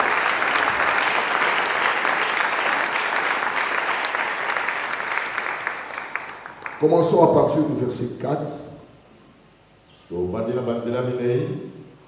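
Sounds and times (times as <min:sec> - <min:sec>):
congregation applauding: 0:00.0 - 0:07.8.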